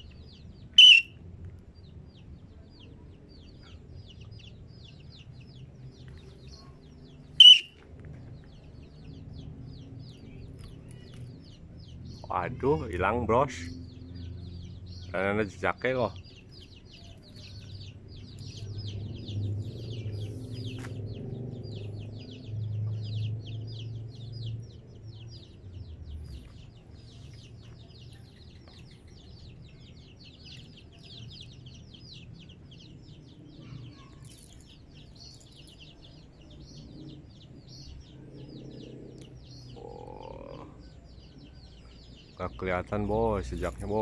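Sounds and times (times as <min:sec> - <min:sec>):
rapid high chirping: 0:00.7 - 0:01.2, 0:07.3 - 0:07.8.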